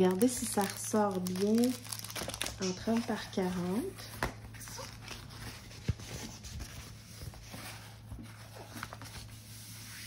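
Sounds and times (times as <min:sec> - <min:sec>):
rustling plastic film: 0:00.0 - 0:04.0.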